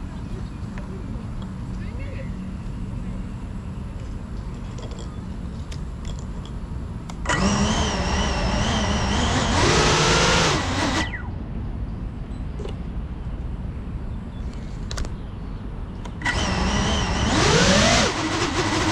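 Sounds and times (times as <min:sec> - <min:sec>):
drone motors whining: 0:07.1 - 0:11.4, 0:16.0 - 0:18.9
propeller wash rushing: 0:16.2 - 0:18.9.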